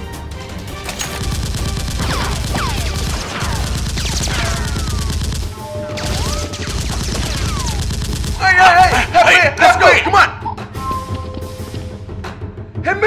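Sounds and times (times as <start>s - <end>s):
rapid automatic gunfire: 0.9s - 9.2s.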